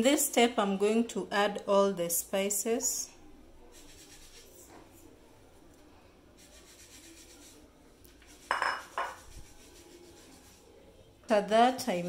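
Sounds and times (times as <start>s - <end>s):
faint room noise: 0.0s - 12.0s
kitchenware clinking against bowl: 8.4s - 9.4s.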